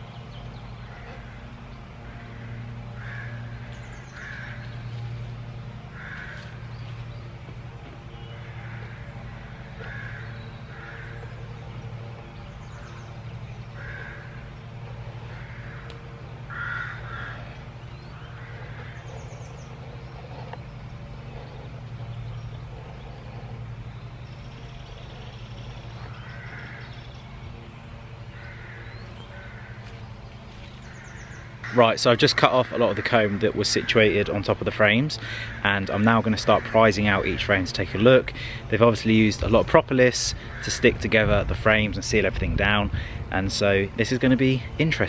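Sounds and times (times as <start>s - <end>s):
steady low hum: 0.0s - 45.0s
crows cawing: 0.8s - 5.1s, 5.8s - 6.7s, 8.3s - 37.4s, 40.3s - 41.0s.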